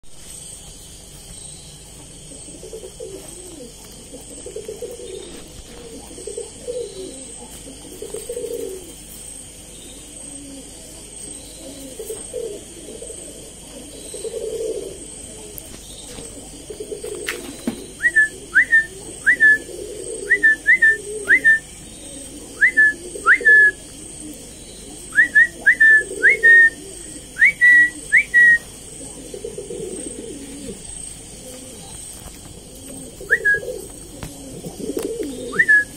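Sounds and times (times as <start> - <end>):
pigeon cooing: 1.8 - 35.9.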